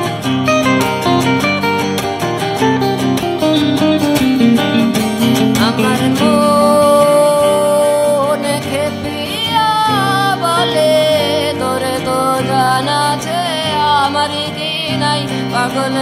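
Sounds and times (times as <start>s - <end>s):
bending melodic line: 0.0s - 16.0s
guitars playing plucked notes: 0.0s - 16.0s.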